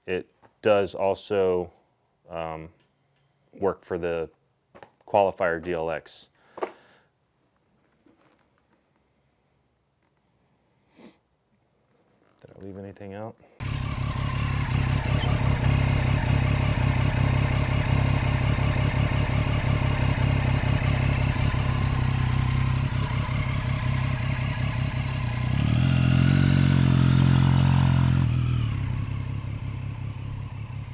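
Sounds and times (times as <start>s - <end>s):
motorcycle engine running: 13.6s - 30.9s.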